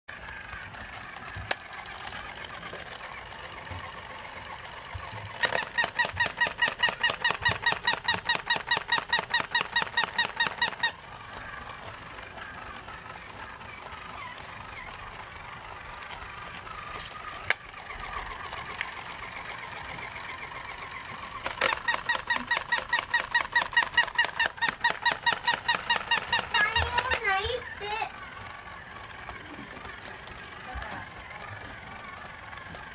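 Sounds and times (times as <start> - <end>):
toy dog yapping: 0.2 - 31.4.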